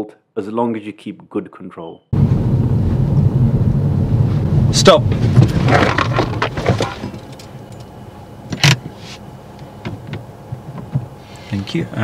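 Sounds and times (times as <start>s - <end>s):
rumbling and knocking: 2.2s - 7.6s.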